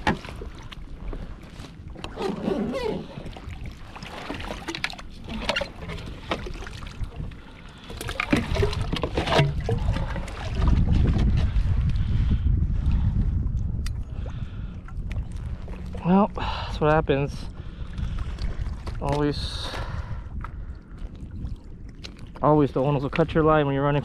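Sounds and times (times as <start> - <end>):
wind rumbling on microphone: 0.0 - 24.0
fishing gear knocking and rattling: 8.0 - 11.5.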